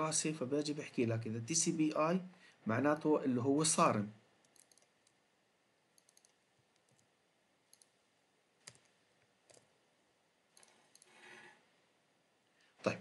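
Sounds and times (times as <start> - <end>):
keyboard typing: 4.4 - 5.2, 5.9 - 7.1, 7.7 - 8.0, 8.6 - 9.7, 10.5 - 11.2.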